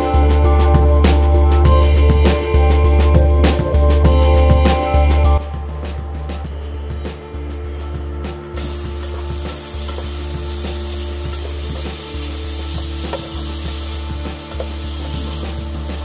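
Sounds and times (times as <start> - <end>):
oil sizzling in a frying pan: 8.6 - 16.0
spatula scraping and tapping: 8.6 - 16.0.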